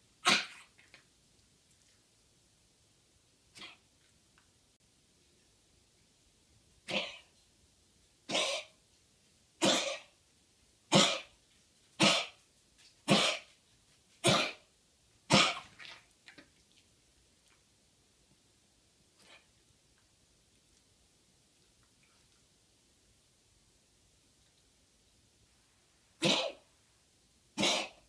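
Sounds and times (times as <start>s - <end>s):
dog coughing: 0.2s - 0.8s, 3.6s - 3.8s, 6.8s - 7.3s, 8.3s - 8.8s, 9.6s - 10.2s, 10.9s - 11.4s, 12.0s - 12.4s, 13.0s - 13.6s, 14.2s - 14.7s, 15.3s - 15.8s, 26.2s - 26.6s, 27.6s - 28.0s.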